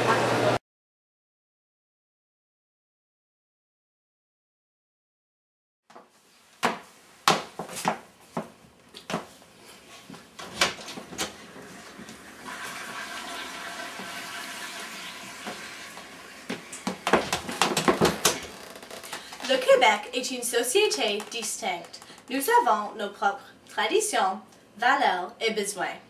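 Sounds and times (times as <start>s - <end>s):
toilet flushing: 11.1s - 17.5s
sharp knocks and clicks: 16.9s - 18.5s.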